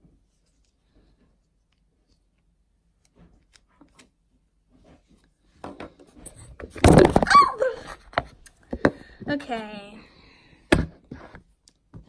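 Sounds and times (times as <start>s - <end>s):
phone knocked over and handled: 6.6s - 7.4s.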